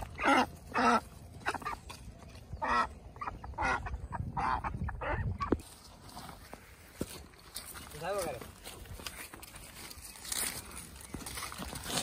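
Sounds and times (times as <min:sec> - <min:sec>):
ducks quacking loudly: 0:00.0 - 0:05.6.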